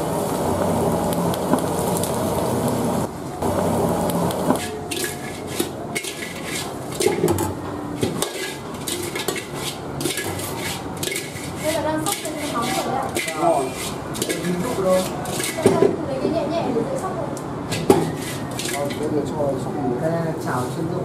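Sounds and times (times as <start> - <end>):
oil frying in a wok: 0.0 - 15.9
metal wok clanking and scraping: 4.3 - 15.9, 17.7 - 19.1.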